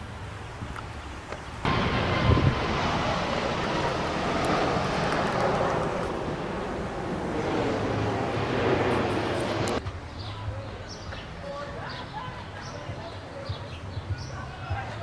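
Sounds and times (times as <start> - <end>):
jet airliner flying overhead: 1.6 - 9.8.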